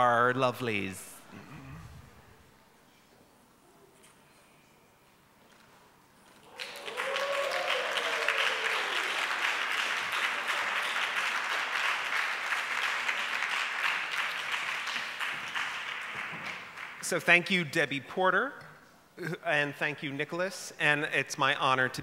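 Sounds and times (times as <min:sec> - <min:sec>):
people applauding: 0:06.3 - 0:17.2.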